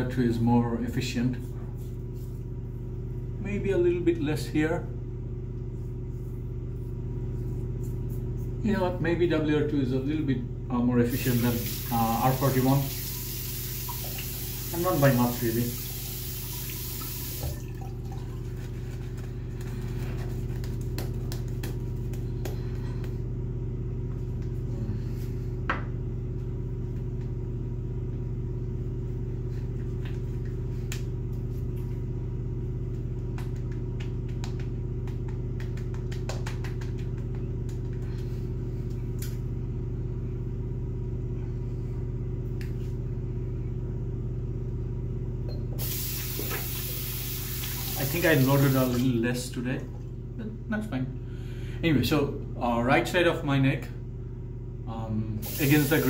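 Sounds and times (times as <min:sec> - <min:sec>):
steady low hum: 0:00.0 - 0:56.0
tap water running into sink: 0:11.2 - 0:18.5, 0:45.8 - 0:49.2, 0:55.4 - 0:56.0.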